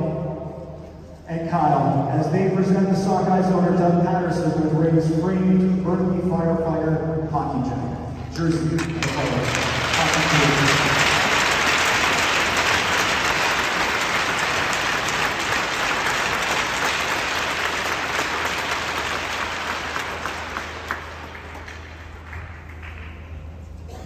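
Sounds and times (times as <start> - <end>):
large crowd applauding: 8.8 - 23.6.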